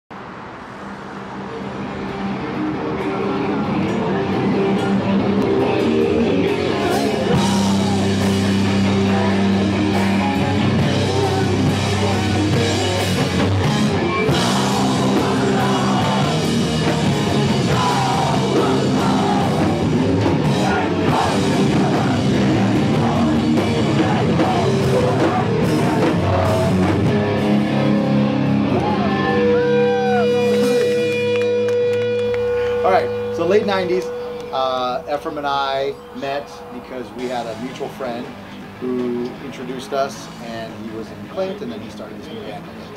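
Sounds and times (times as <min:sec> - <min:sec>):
punk rock with singing: 0:02.9 - 0:31.3.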